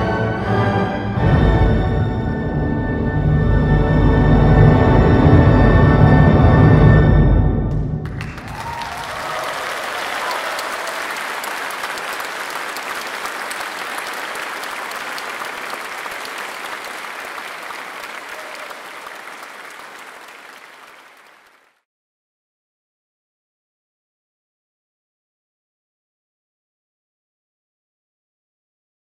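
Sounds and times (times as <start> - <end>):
audience applauding: 7.7 - 21.8.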